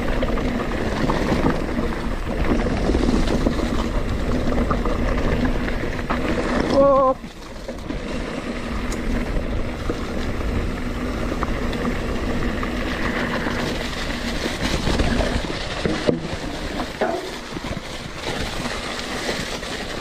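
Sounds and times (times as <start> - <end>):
bike tyres rolling on dirt trail: 0.0 - 20.0.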